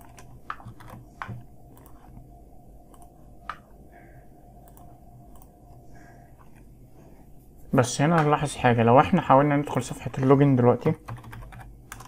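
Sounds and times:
keyboard and mouse clicks: 0.0 - 2.2, 2.9 - 3.7, 4.6 - 5.8, 9.8 - 12.0
faint steady hum: 0.0 - 12.0.

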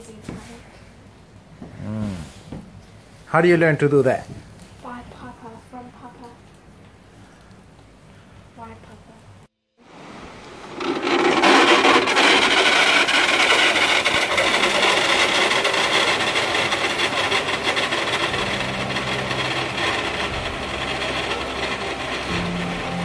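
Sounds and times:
pulley wheels rolling on cable: 10.0 - 23.0.

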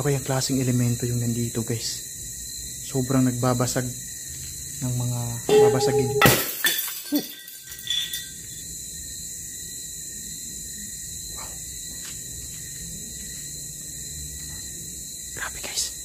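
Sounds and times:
low hum and hiss: 0.0 - 11.3
night insects trilling: 0.0 - 16.0.

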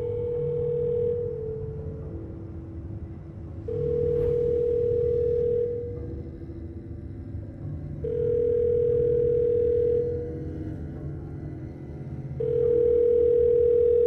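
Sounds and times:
low electronic drone: 0.0 - 14.0
steady electronic tone: 3.7 - 6.2.

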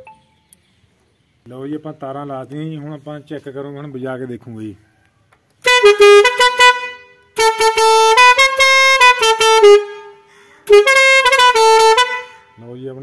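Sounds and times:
musical air horn playing a tune: 5.6 - 12.6.

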